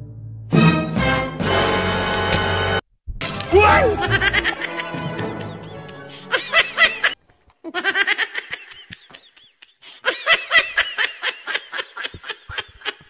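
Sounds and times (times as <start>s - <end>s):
high rapid laughter: 3.6s - 13.0s.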